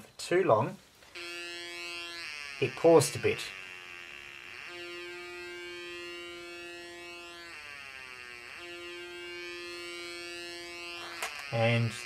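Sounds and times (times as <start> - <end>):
buzzy electronic siren tone: 1.1 - 12.0.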